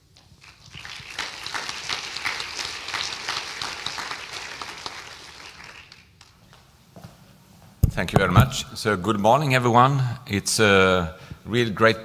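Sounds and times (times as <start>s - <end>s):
audience applauding: 0.2s - 6.4s.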